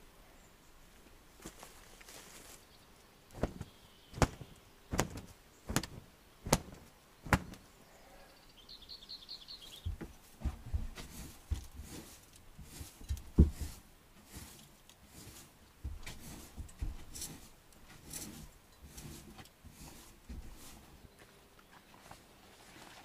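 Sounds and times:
rustling: 1.0s - 7.8s, 9.7s - 23.0s
sharp knocks: 3.4s - 7.6s
soft thumps: 3.4s - 7.6s, 9.8s - 13.8s.

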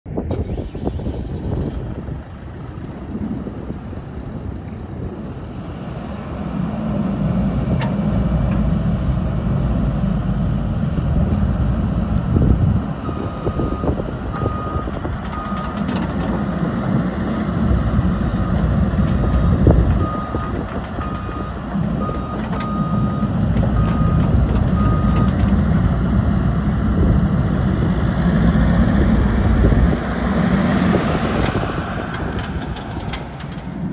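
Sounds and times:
excavator diesel engine running: 0.1s - 33.9s.

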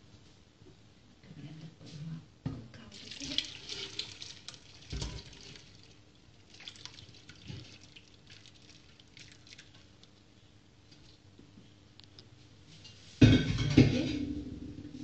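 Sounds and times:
liquid splashing and dripping: 3.0s - 10.2s.

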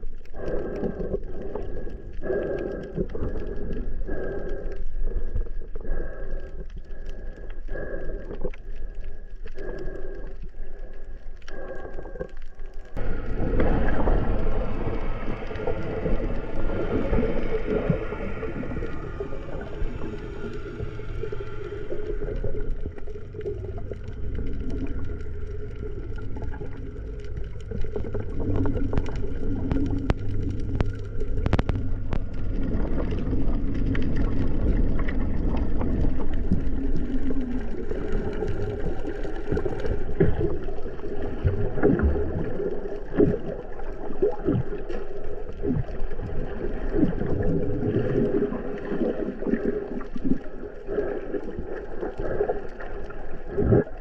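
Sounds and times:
bubbling: 0.0s - 54.0s
low steady hum: 0.0s - 54.0s
underwater rumble of moving water: 0.0s - 54.0s
sharp underwater clicks: 21.6s - 46.2s.

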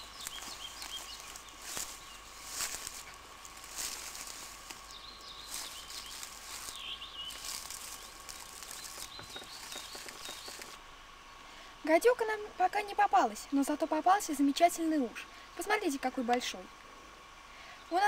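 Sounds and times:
faint bird chirps: 0.0s - 2.5s, 4.8s - 10.8s
footsteps through tall grass: 0.0s - 10.8s.

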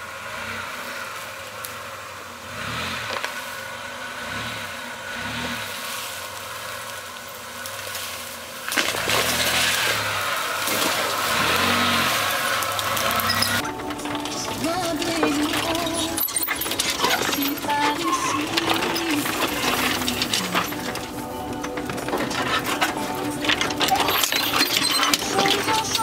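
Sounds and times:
car engine revving: 0.0s - 26.0s.

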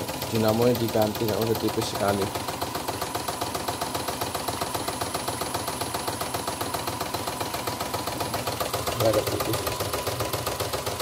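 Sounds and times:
embroidery machine stitching: 0.0s - 11.0s.

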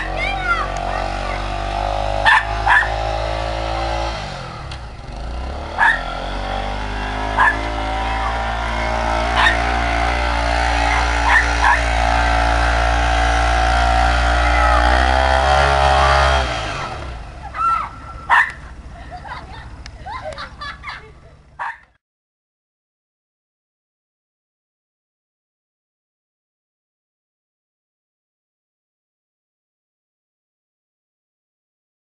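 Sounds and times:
atv engine under load: 0.0s - 21.9s
dog barking: 2.2s - 3.0s, 5.8s - 6.1s, 7.3s - 8.6s, 9.3s - 9.7s, 10.8s - 12.0s, 17.6s - 18.7s, 21.6s - 21.9s.

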